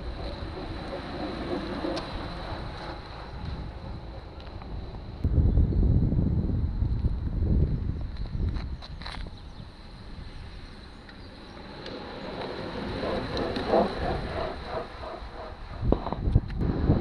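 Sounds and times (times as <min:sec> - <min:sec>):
bicycles whirring past: 0:00.0 - 0:05.2, 0:09.0 - 0:17.0
tyres on asphalt: 0:00.0 - 0:05.4, 0:06.3 - 0:17.0
wind buffeting microphone: 0:00.0 - 0:17.0.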